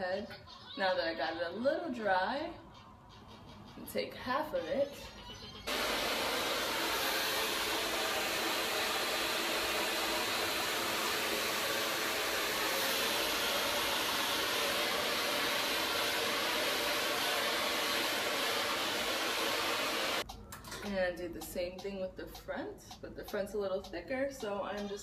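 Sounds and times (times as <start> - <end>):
hair dryer running: 5.7 - 20.2.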